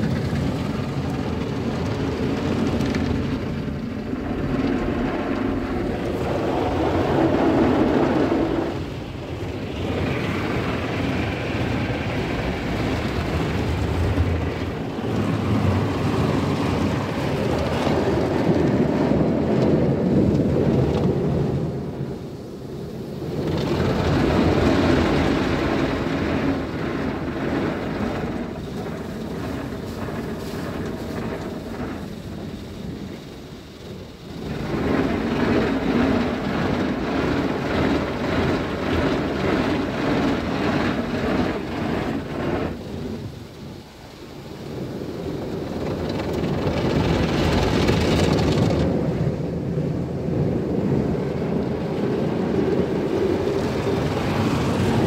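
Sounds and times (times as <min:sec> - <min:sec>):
car wash brushes scrubbing car: 0:23.6 - 0:43.3
water spray: 0:28.5 - 0:33.6.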